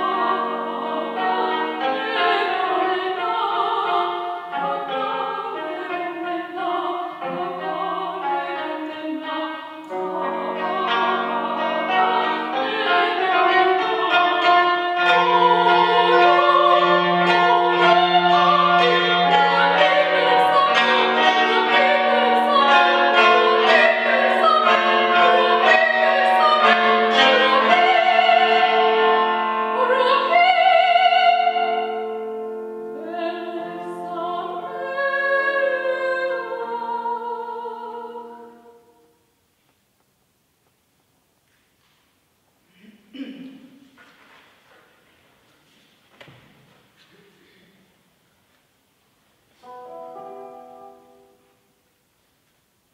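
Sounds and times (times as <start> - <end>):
woman singing classical with vibrato: 0.0 - 39.2
cimbalom playing: 9.9 - 30.8, 49.6 - 51.6.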